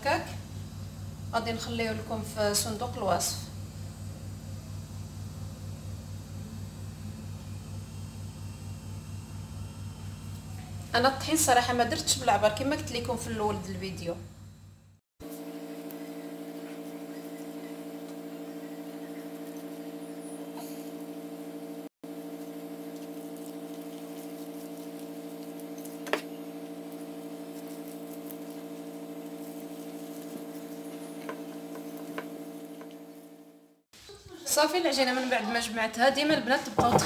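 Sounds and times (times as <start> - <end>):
steady low hum: 0.0 - 33.9
hands mixing dough in bowl: 22.2 - 33.2.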